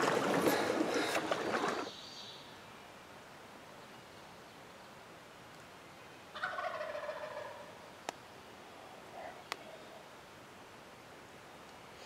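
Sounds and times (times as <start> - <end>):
turkey gobbling: 6.3 - 7.8.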